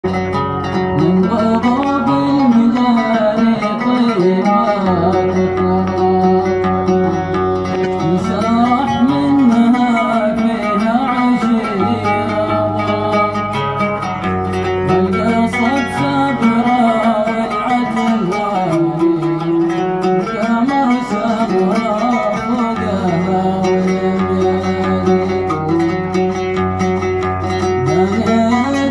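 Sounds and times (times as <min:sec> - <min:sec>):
oud plucked: 0:00.0 - 0:28.9
man singing wavering vocal line: 0:14.9 - 0:26.1, 0:27.8 - 0:28.9.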